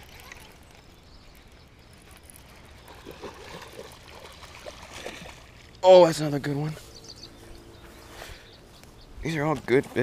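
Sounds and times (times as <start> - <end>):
fish splashing in water: 2.8 - 5.7.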